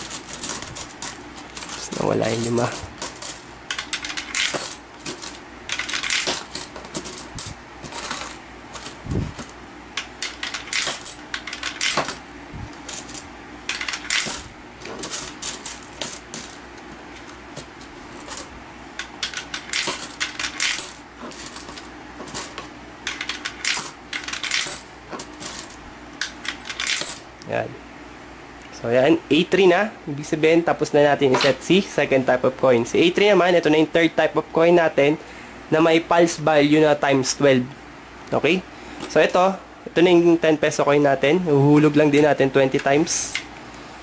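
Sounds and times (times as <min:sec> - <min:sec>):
coins clinking into box: 0:00.0 - 0:09.0, 0:10.2 - 0:12.2, 0:12.8 - 0:16.6, 0:19.2 - 0:25.8, 0:26.5 - 0:27.2
coins rattling through coin acceptor: 0:00.0 - 0:12.2, 0:12.8 - 0:16.6, 0:18.1 - 0:27.3.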